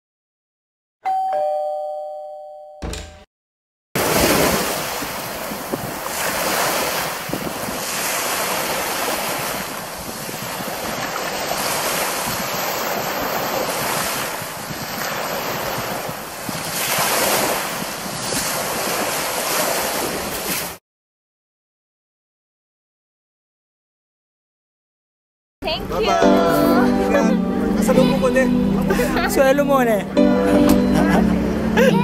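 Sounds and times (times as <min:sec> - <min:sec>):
small waves breaking on beach: 0:04.0 - 0:20.8
wind buffeting microphone: 0:04.0 - 0:20.8.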